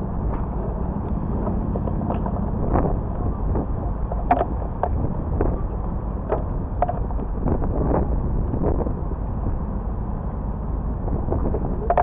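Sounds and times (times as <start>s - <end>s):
traffic rumble: 0.0s - 12.0s
wind on microphone: 0.0s - 12.0s
bike clicks and knocks: 3.9s - 5.0s, 6.2s - 7.3s.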